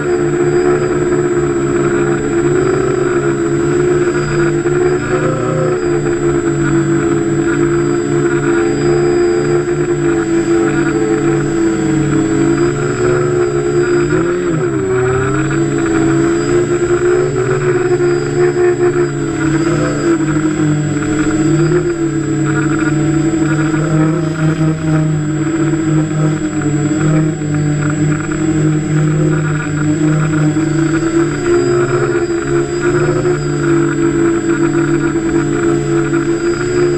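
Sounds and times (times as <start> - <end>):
drone motors and propellers humming: 0.0 - 36.9.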